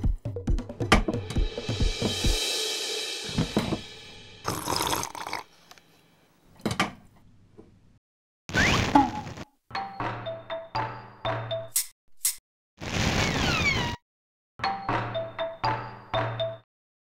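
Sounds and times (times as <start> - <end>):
drum beat: 0.0 - 4.8
cymbal crash ringing: 1.4 - 4.5
sharp hit: 1.5 - 4.6
burst of noise: 12.8 - 14.0.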